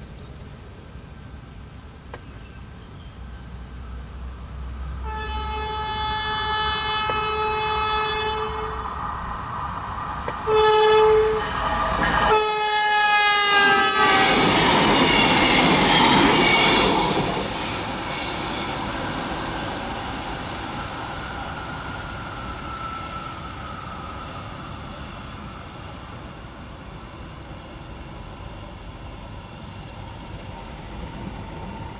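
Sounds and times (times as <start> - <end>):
railcar rumbling past: 2.5 - 31.9
train horn blasts: 5.0 - 8.9, 10.4 - 14.7.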